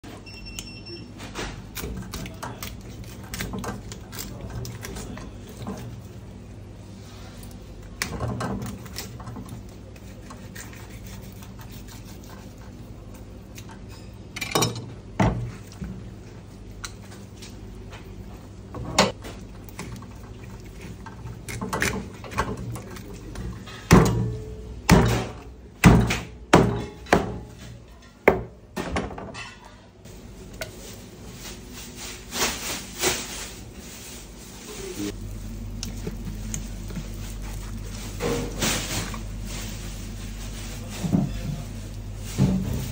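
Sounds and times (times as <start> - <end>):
low kitchen hum: 0.0 - 42.9
knife scraping and cutting fish: 1.4 - 6.0, 8.0 - 14.2, 19.8 - 23.9.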